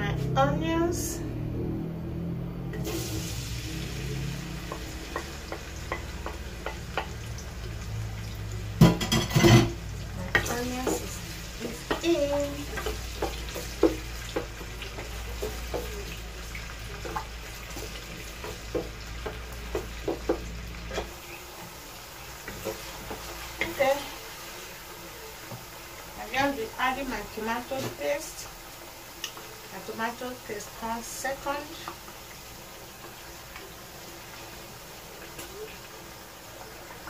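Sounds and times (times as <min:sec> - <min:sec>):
onions sizzling in oil: 0:00.0 - 0:37.0
spatula knocking and scraping pot: 0:04.7 - 0:07.2, 0:08.8 - 0:16.2, 0:17.0 - 0:21.2.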